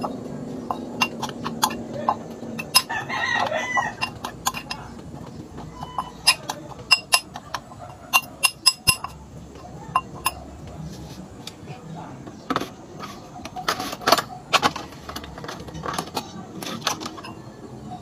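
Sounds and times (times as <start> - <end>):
metal spoon clinking glass bowl: 0.7 - 2.9, 3.8 - 4.9, 5.6 - 9.2, 9.9 - 10.4
rooster crowing: 2.7 - 4.4.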